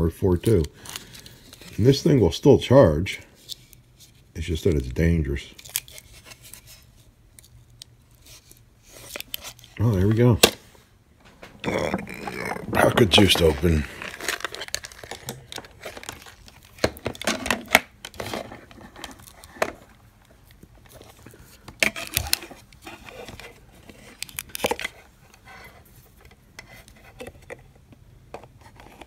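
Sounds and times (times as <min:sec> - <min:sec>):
plastic crinkling and rustling: 0:11.2 - 0:29.0.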